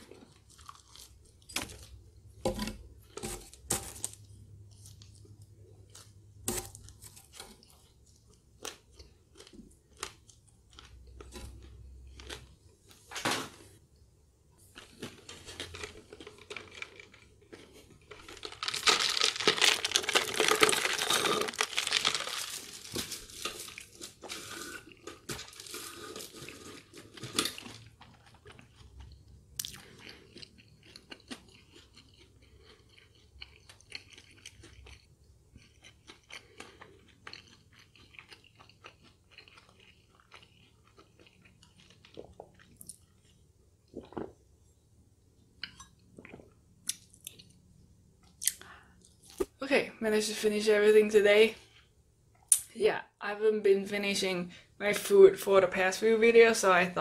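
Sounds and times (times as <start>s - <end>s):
chewing and mouth clicks: 26.5s - 44.3s, 45.6s - 47.6s.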